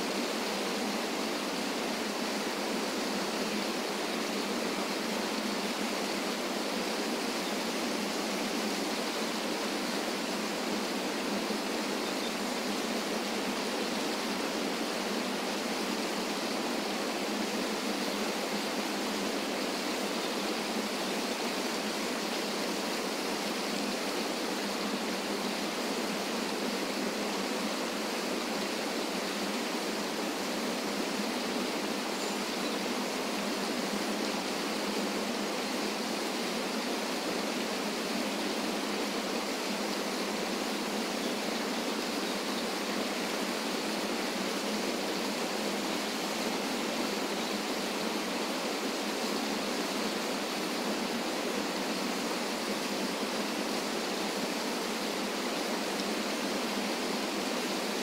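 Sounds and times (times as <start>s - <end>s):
waterfall rushing over rocks: 0.0s - 58.0s.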